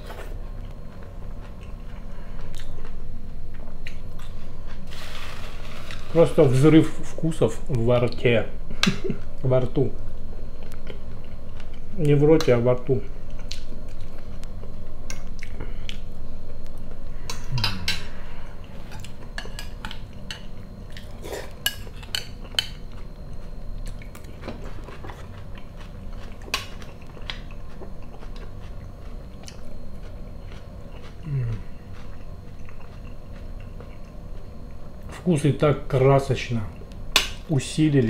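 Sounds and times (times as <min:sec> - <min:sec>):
close-up chewing: 0:20.9 - 0:34.7.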